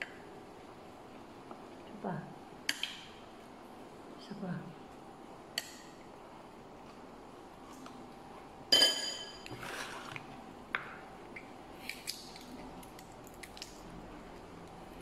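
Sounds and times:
tableware clinking: 8.7 - 9.8
fingers squishing shellfish: 11.3 - 14.7.

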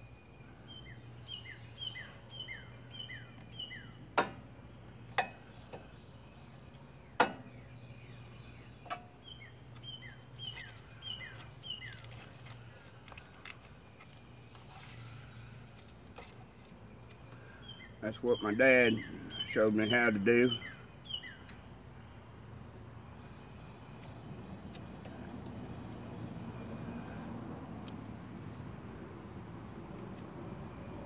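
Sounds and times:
songbird chirping: 0.0 - 31.0
sharp metallic clicks: 4.1 - 4.5, 7.1 - 7.5.

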